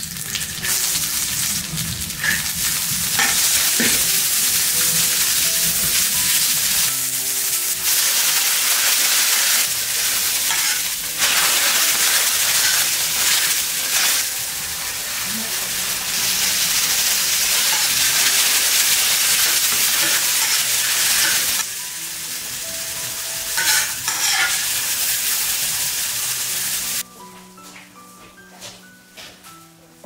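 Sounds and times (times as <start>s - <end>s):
food sizzling in hot oil: 0.0s - 27.0s
metal spatula stirring: 10.4s - 14.2s, 23.6s - 24.6s.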